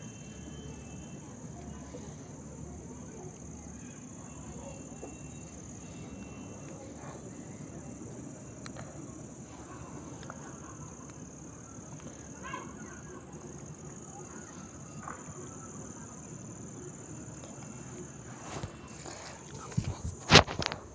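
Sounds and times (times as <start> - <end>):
crickets trilling: 0.0 - 20.9
faint rustling and handling noise: 0.0 - 20.9.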